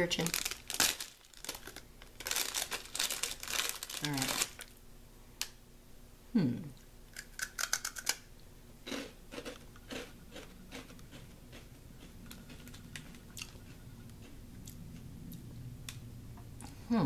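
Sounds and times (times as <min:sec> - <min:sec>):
crunchy rice crackers being chewed: 0:00.2 - 0:04.7, 0:07.2 - 0:08.2, 0:08.8 - 0:15.0
person humming mm: 0:06.3 - 0:06.8.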